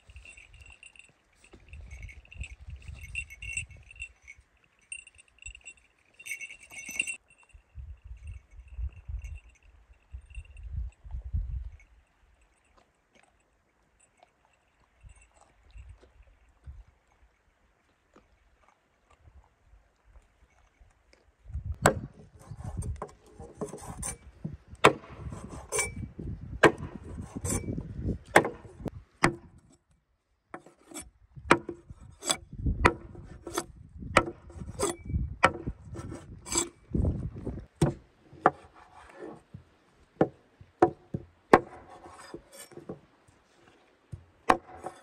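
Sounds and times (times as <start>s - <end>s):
handling noise: 0.0s - 7.3s
cleaver chopping on wooden board: 21.8s - 22.2s, 24.8s - 25.3s, 26.6s - 27.0s, 28.3s - 29.5s, 31.5s - 33.6s, 34.2s - 36.2s, 40.2s - 42.0s, 44.5s - 44.9s.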